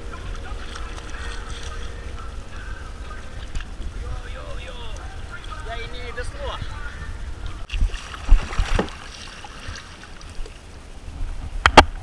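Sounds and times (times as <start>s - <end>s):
wind on microphone: 0.0s - 12.0s
paddle splashing: 0.1s - 2.0s, 7.7s - 10.7s
water washing against hull: 7.5s - 11.5s.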